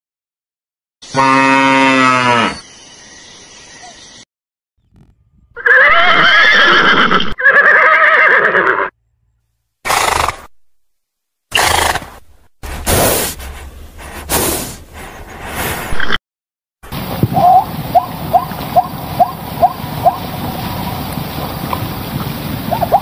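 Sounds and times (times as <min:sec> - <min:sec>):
horse neighing: 0:05.6 - 0:08.9.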